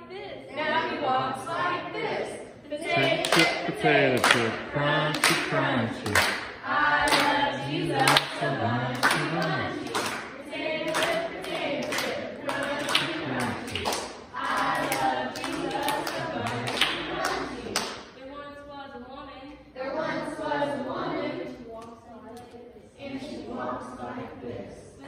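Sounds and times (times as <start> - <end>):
voices singing: 0.0 - 25.0
hand claps: 3.0 - 7.4, 8.0 - 18.1.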